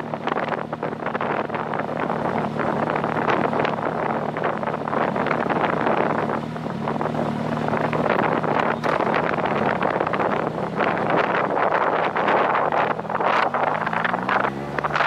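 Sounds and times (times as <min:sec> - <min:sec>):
low engine hum: 0:00.0 - 0:15.0
wind buffeting microphone: 0:00.0 - 0:15.0.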